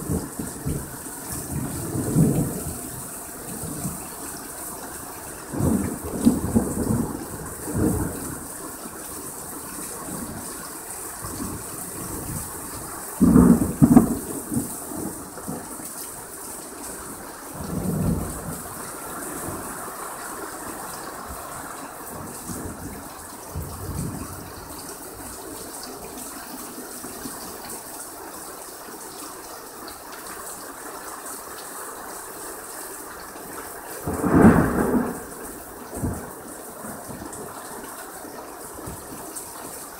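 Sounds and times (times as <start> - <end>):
thunder clap and rumble: 0.0 - 4.1, 5.5 - 8.4, 11.2 - 15.7, 22.1 - 24.8, 34.0 - 35.4
heavy rain: 0.0 - 39.9.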